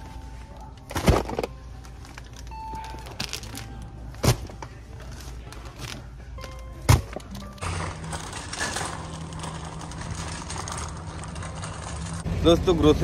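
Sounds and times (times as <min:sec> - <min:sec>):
packaging rustling and crinkling: 0:07.6 - 0:12.2.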